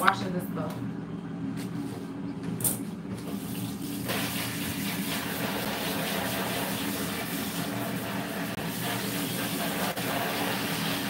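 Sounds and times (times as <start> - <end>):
water running into sink: 3.3 - 11.0.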